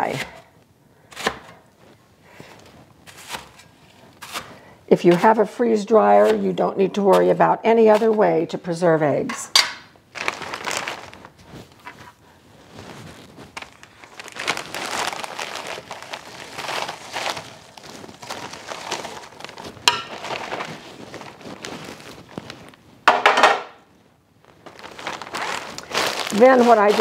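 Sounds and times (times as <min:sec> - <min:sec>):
plastic bag crinkling: 0:10.0 - 0:27.0.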